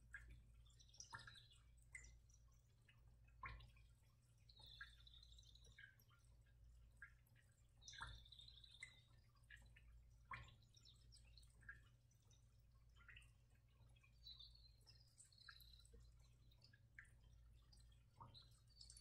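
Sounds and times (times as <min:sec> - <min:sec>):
faint small ticks: 0:00.0 - 0:19.0.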